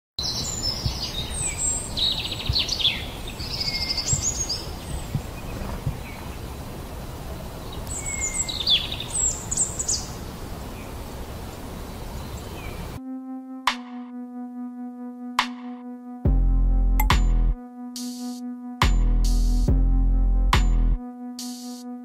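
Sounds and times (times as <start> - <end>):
fledgling bird begging chirps: 0.2 - 6.6, 7.9 - 10.1.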